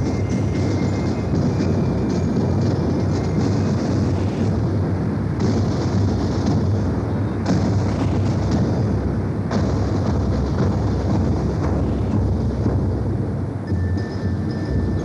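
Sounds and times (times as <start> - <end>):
marching drums playing: 0.0 - 15.0.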